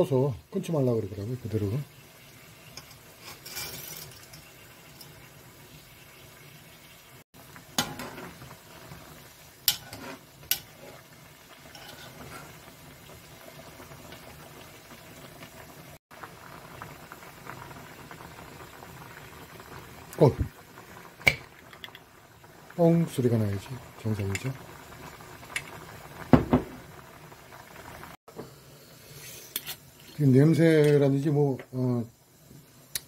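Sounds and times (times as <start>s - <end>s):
water boiling in a pan: 0.0s - 33.0s
tongs clicking against pan: 9.7s - 10.7s.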